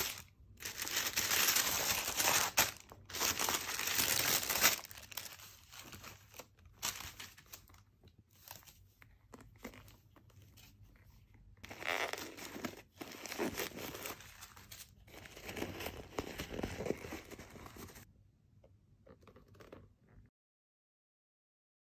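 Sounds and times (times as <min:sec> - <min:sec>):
packaging crinkling and tearing: 0:00.0 - 0:08.7, 0:11.6 - 0:18.0.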